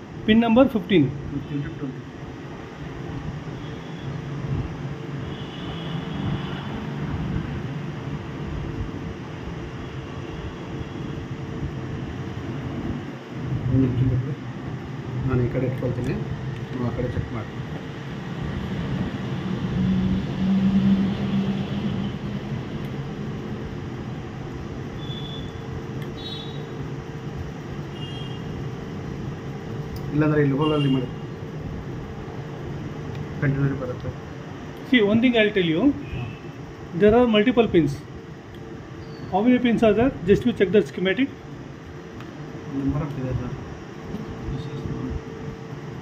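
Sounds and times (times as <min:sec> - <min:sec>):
constant hum: 0:00.0 - 0:46.0
faint high-pitched chirps: 0:39.0 - 0:39.4.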